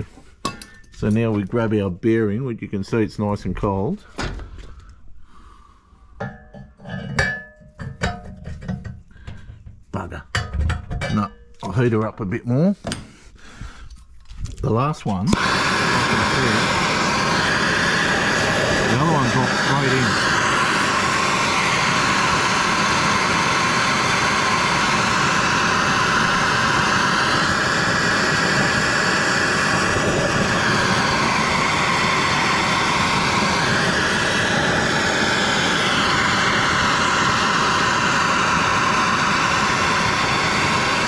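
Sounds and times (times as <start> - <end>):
blowtorch hissing: 15.2 - 41.0.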